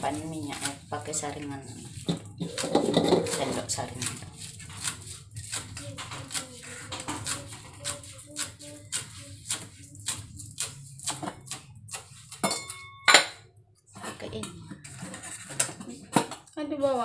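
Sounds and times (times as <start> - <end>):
knife chopping herbs on wooden board: 1.5 - 12.4.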